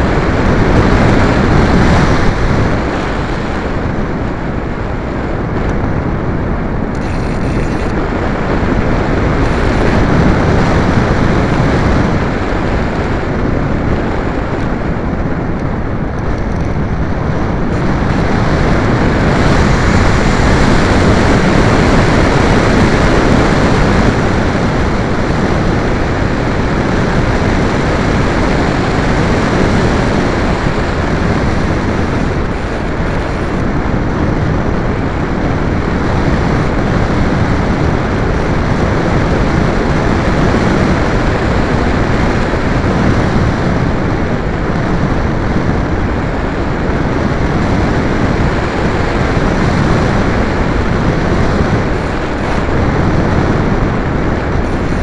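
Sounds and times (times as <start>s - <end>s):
rushing wind: 0.0s - 55.0s.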